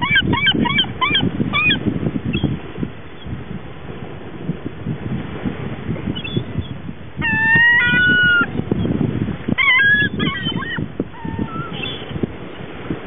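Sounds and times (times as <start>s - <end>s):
seagulls calling: 0.0s - 2.5s, 6.2s - 8.6s, 9.6s - 12.2s
wind rumble on microphone: 0.0s - 13.0s.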